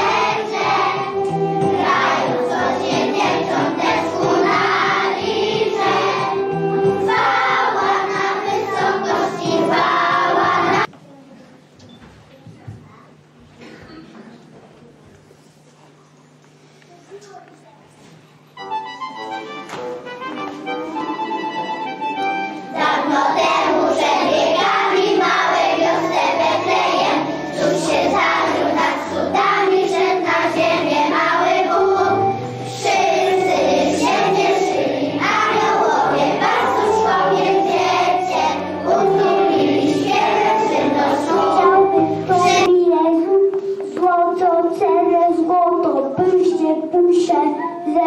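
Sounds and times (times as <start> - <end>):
children singing: 0.0 - 10.9, 22.7 - 43.5
instrumental accompaniment: 0.0 - 10.9, 18.2 - 44.2.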